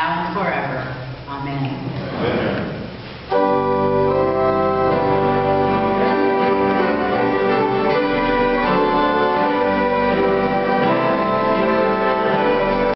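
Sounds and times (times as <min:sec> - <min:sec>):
church organ chords: 0:03.3 - 0:12.9.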